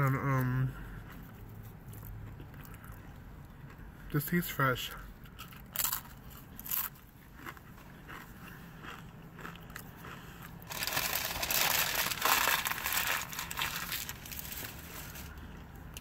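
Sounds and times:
tortilla chips crunching: 0:05.2 - 0:16.0.

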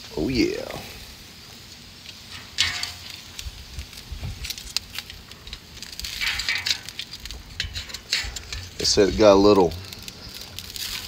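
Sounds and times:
bacon sizzling and crackling: 0:00.0 - 0:11.0
metal tongs clicking on grate: 0:02.3 - 0:03.2.

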